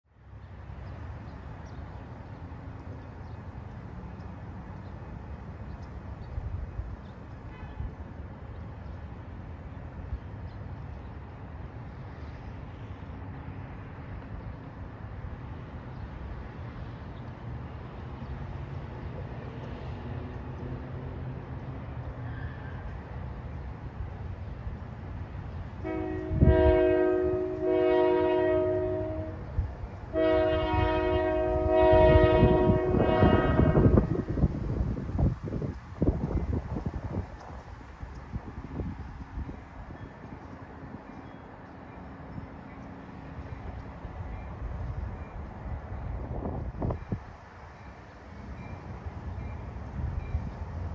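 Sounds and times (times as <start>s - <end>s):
locomotive air horn chord: 25.8s - 34.3s.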